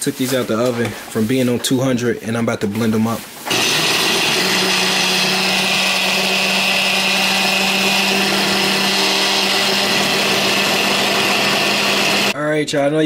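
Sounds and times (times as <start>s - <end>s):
blender grinding eggshells: 3.5s - 12.4s.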